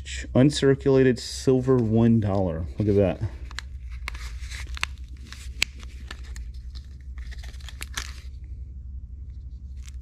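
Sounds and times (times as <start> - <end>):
steady low hum: 0.0 - 10.0
rustling and crinkling: 1.5 - 8.4, 9.2 - 10.0.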